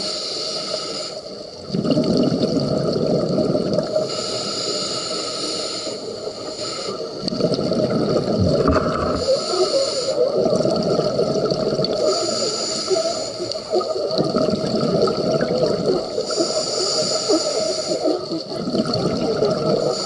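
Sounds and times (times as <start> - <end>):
regulator inhale hissing: 0.0 - 1.4, 4.0 - 7.3, 9.1 - 10.4, 11.9 - 14.2, 16.0 - 18.4, 19.8 - 20.0
exhaled bubbles rushing: 1.6 - 4.1, 7.2 - 20.0.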